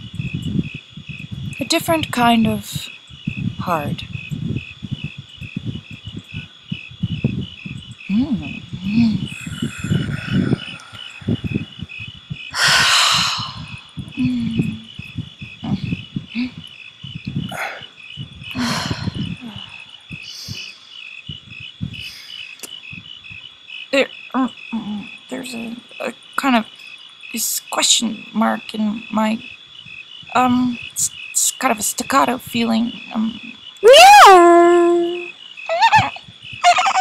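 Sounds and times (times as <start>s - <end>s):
low rumbles: 0.0s - 22.2s
crickets chirping: 0.0s - 37.0s.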